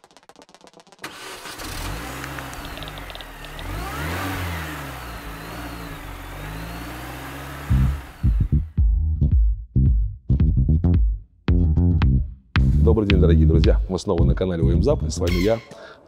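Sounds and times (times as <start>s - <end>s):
car engine starting and revving: 1.0s - 8.8s
heavy electronic beats: 7.7s - 14.5s.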